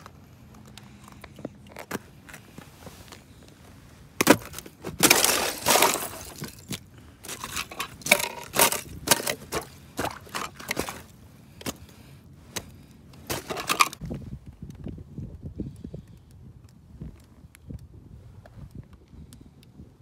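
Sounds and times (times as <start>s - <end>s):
footsteps crunching on icy snow: 1.4s - 11.9s.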